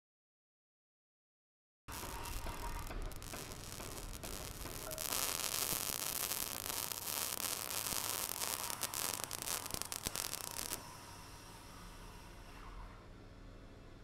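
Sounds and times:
dense static hiss: 1.9 - 14.0.

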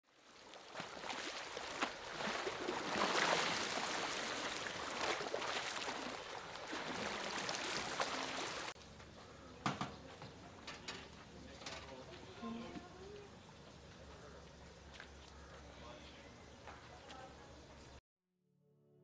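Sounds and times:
seawater rushing and splashing: 0.2 - 8.8.

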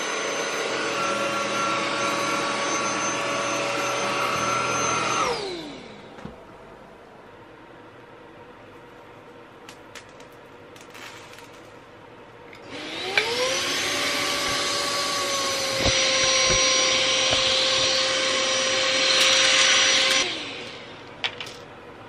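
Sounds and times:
stick vacuum whine: 0.0 - 6.3, 12.6 - 21.6.

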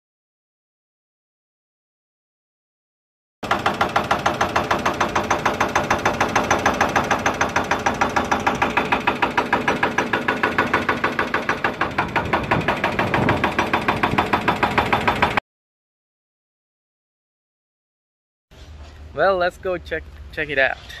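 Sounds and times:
excavator engine under load: 3.4 - 15.4
hydraulic breaker hammering concrete: 3.4 - 15.4.

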